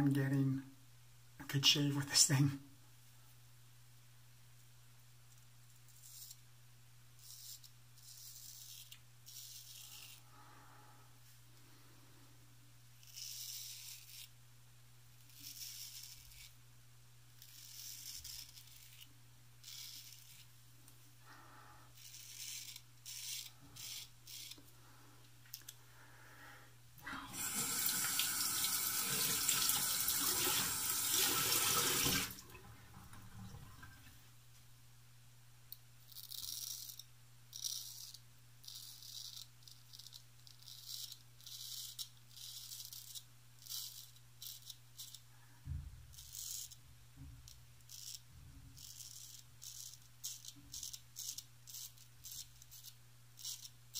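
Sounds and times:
razor scraping stubble: 7.2 - 10.2, 13.0 - 14.4, 15.2 - 16.6, 17.4 - 20.5, 22.0 - 24.7, 36.0 - 45.2, 47.8 - 53.8
tap running: 27.1 - 34.0.

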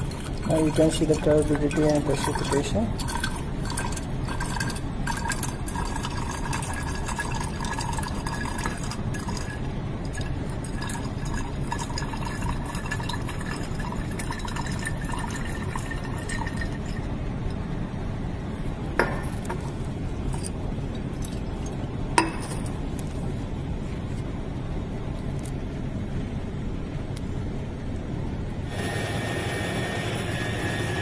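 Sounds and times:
liquid sloshing in glass flask: 0.0 - 17.1
steady background noise: 0.0 - 31.0
glass clink: 22.2 - 22.7.

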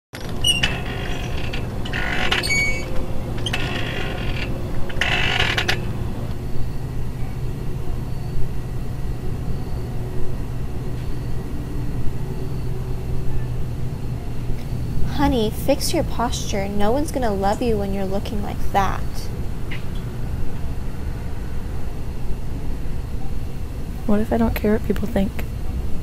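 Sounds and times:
swing chains creaking: 0.1 - 6.4
steady low hum: 0.2 - 26.0.

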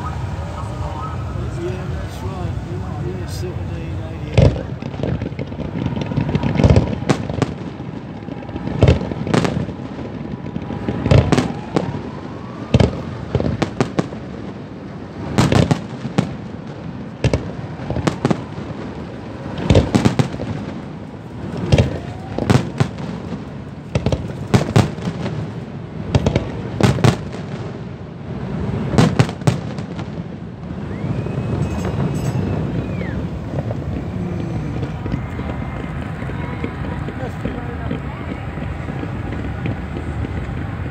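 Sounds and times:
fireworks banging: 0.0 - 40.9
faint rising whistles: 30.8 - 33.4
steady high whistle: 30.8 - 33.4.

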